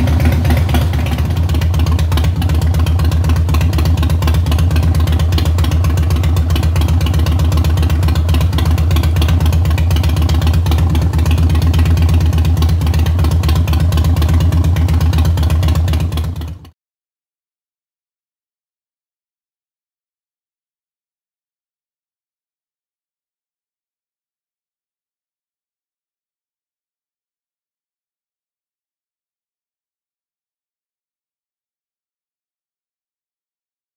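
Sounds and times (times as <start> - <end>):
motorcycle engine idling: 0.0 - 16.8.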